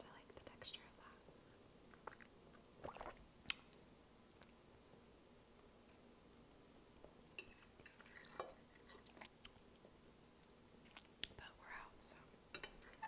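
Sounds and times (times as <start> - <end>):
soft chewing: 3.5 - 11.4.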